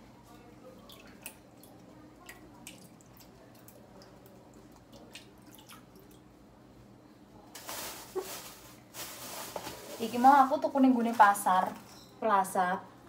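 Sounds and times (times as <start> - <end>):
wet drips into metal bowl: 0.8 - 6.2.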